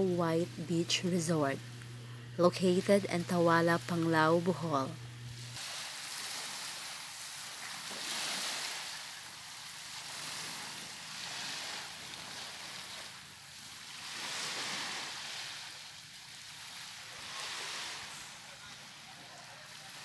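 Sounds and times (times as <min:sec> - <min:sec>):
small waves washing onto sand: 0:05.4 - 0:20.0.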